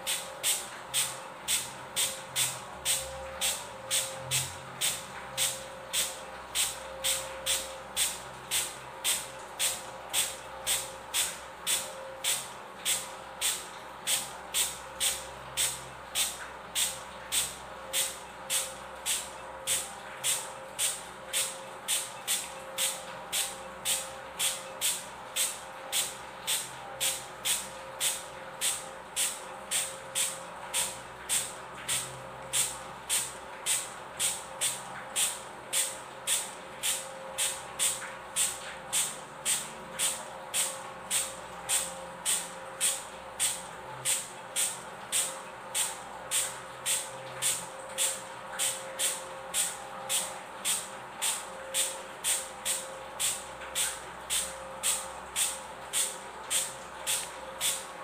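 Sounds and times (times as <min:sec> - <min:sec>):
spray bottle spritzing: 0:32.6 - 0:57.8.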